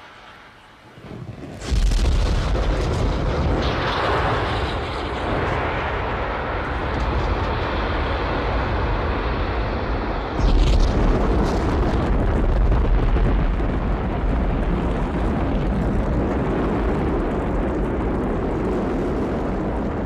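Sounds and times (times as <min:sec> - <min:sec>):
deep rocket engine roar: 0:00.0 - 0:20.0.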